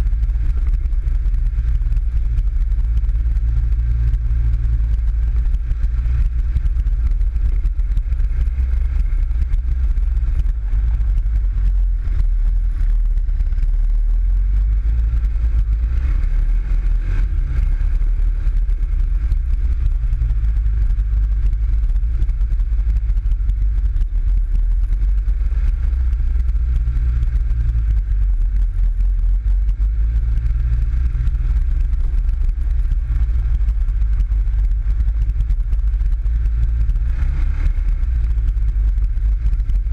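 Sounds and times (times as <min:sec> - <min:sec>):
buggy engine rumbling: 0:00.0 - 0:39.9.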